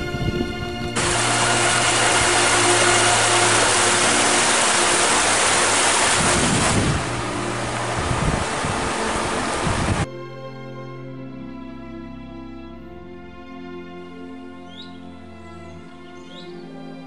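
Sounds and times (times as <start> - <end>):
stream water rushing: 1.0 - 10.1.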